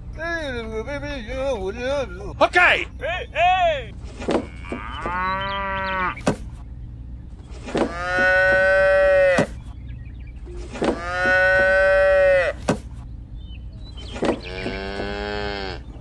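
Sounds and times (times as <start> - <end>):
cattle mooing: 4.4 - 6.2, 7.7 - 9.6, 10.7 - 12.6, 14.4 - 16.0.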